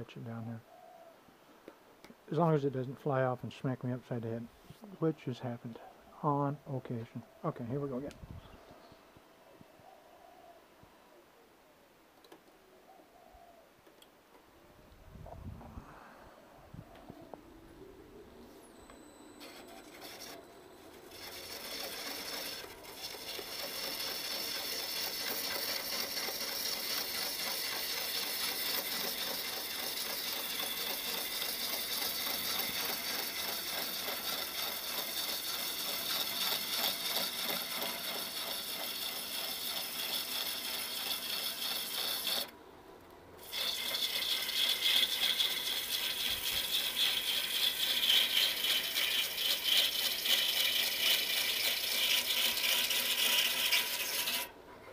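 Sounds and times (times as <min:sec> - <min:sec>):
gouge scraping wood on lathe: 0:19.4 - 0:42.5, 0:43.4 - 0:54.5.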